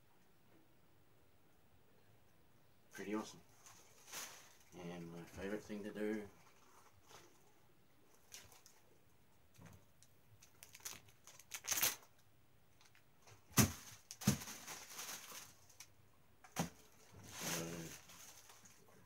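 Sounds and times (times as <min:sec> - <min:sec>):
plastic wrapping crinkling and tearing: 0:03.6 - 0:04.8, 0:08.2 - 0:08.8, 0:10.4 - 0:12.2, 0:12.8 - 0:16.0, 0:16.6 - 0:19.0.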